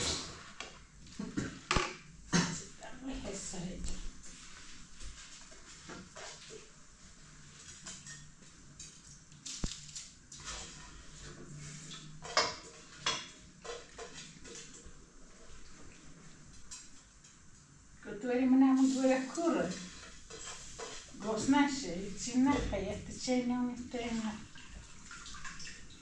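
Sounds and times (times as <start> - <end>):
ladle scraping cooking pot: 19.4 - 21.6.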